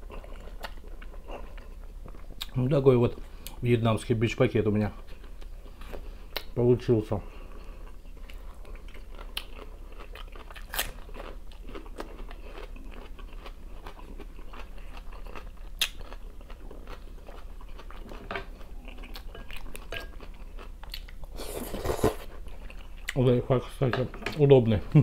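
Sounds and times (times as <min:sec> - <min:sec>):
person chewing: 0:00.0 - 0:02.6, 0:07.4 - 0:23.2.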